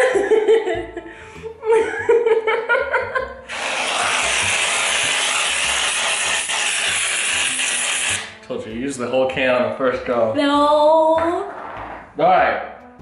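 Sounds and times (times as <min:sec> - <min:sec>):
aerosol can spraying hiss: 0:03.5 - 0:08.3.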